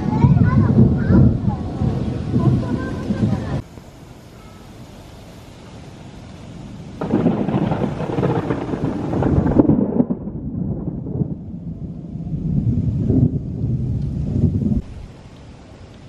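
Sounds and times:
thunder rumbling: 0.0s - 3.6s, 6.6s - 15.4s.

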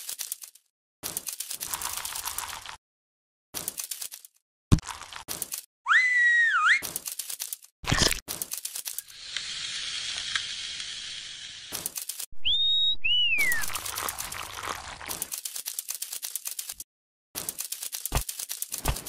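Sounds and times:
whistle glides: 12.4s - 13.8s.

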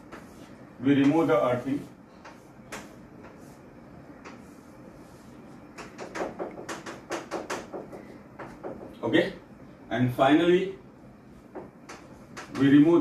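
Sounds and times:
chalk on a blackboard: 0.0s - 8.8s.

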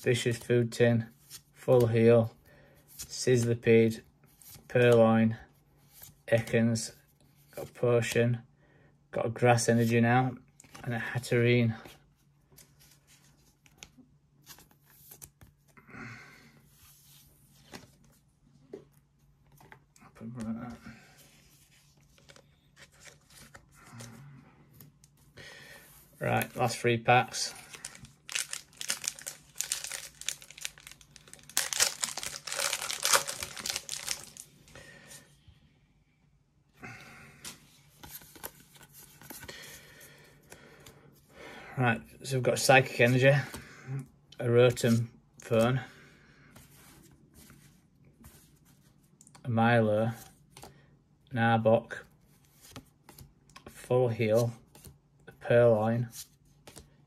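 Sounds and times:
trading cards rustling and clicking: 21.7s - 24.1s, 26.3s - 34.6s
foil wrapper crinkling and tearing: 27.7s - 34.5s.

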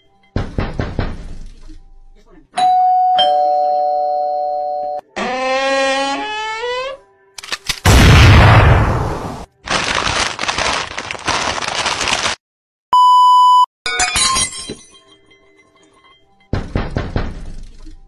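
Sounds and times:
short beep: 12.9s - 13.7s
glass shattering: 13.9s - 15.2s.

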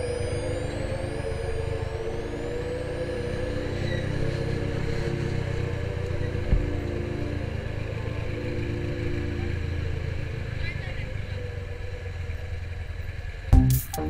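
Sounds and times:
motorcycle engine running: 3.4s - 13.9s.

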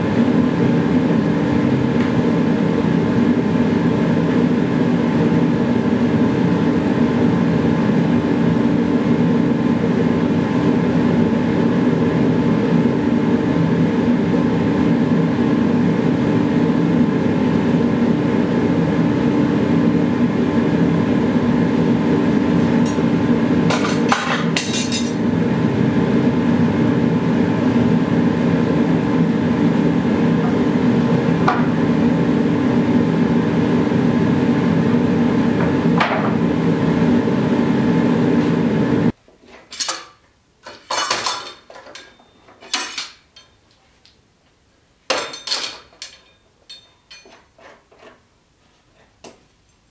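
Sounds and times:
blower droning: 0.0s - 39.2s.

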